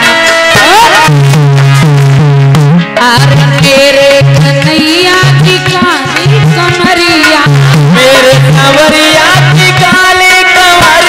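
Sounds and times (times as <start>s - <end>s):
steady drum beat: 0.0s - 11.0s
woman singing: 3.0s - 11.0s.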